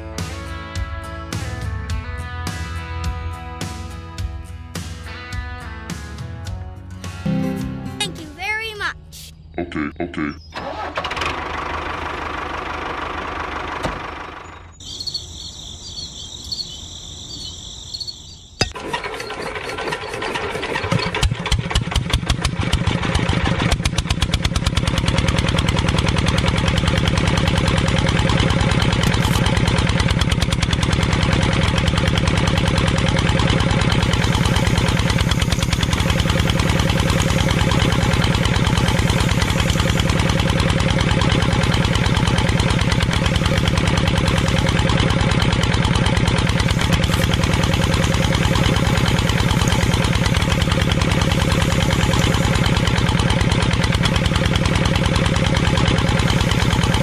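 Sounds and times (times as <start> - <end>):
small engine starting and chugging: 10.5 - 15.2, 18.6 - 57.0.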